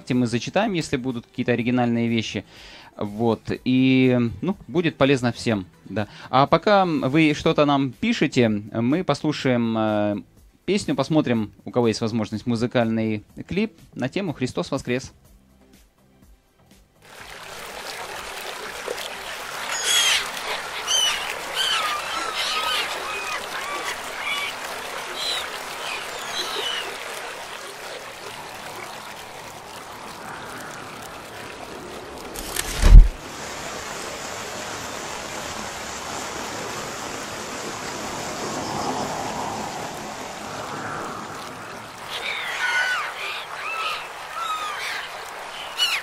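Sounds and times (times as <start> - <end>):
birds chirping: 19.1 - 32.2, 37.8 - 46.0
steady rushing noise: 28.3 - 42.3.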